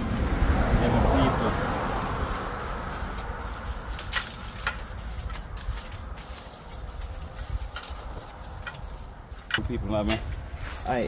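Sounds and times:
charcoal clinking on metal grill: 3.9s - 6.7s.

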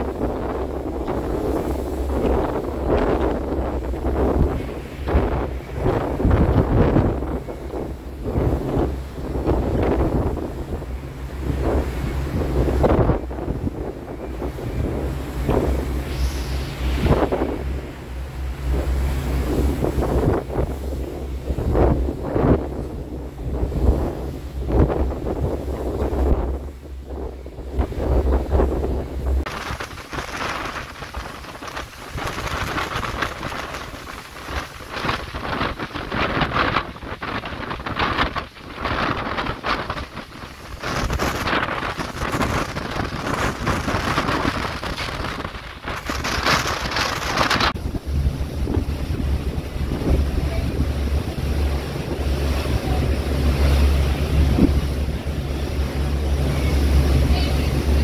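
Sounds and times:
boat engine running: 0.0s - 58.0s
wake churning: 0.0s - 58.0s
wind gusting across microphone: 0.0s - 58.0s.

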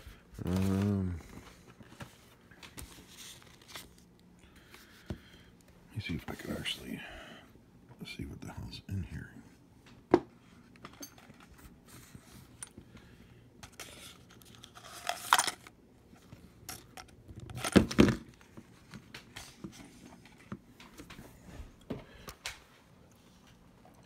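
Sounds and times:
plastic packaging crinkling: 13.7s - 15.7s.

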